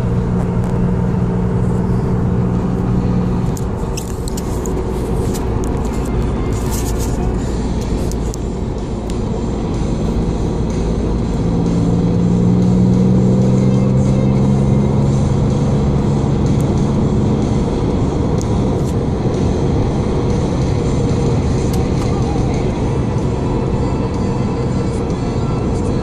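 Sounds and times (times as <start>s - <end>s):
car engine accelerating: 0.0s - 26.0s
tyre and road noise: 0.0s - 26.0s.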